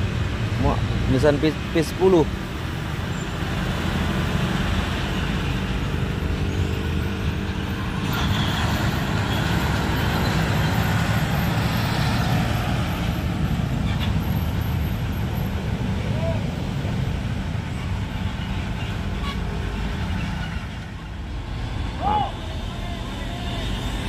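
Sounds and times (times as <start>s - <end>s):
road and traffic noise: 0.0s - 24.0s.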